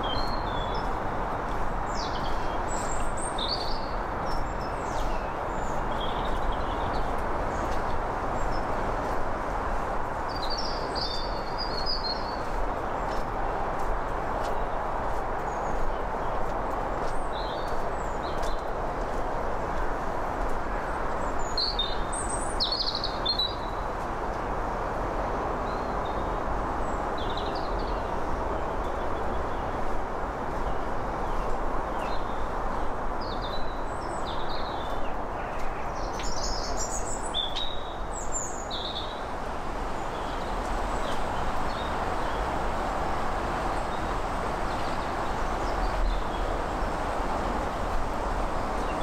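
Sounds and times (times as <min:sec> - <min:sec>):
light footsteps on path: 0:00.1 - 0:49.0
small birds chirping: 0:33.2 - 0:39.3
steady rushing noise: 0:36.8 - 0:49.0.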